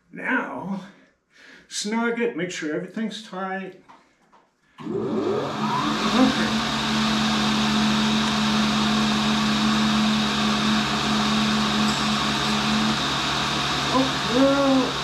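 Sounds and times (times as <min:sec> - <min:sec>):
grinder motor spinning: 0:04.8 - 0:15.0.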